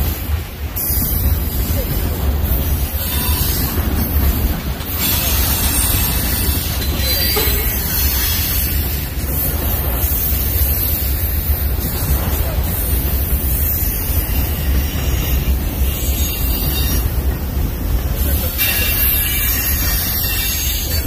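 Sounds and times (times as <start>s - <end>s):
steel wheels rumbling on rail: 0.0s - 21.0s
high wheel squeal: 13.7s - 17.2s, 18.4s - 21.0s.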